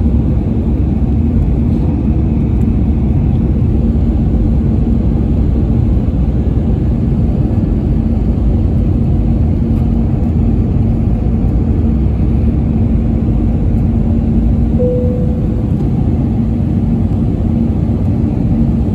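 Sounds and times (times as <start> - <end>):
constant low hum: 0.0 - 18.9
jet engines roaring: 0.0 - 18.9
short higher tone: 14.8 - 16.2.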